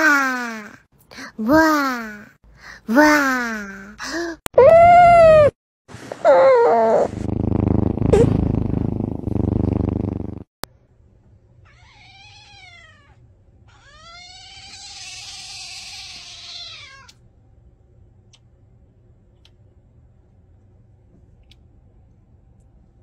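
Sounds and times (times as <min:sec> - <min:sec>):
cat purring: 0:06.7 - 0:10.5
cat meowing: 0:11.6 - 0:17.2.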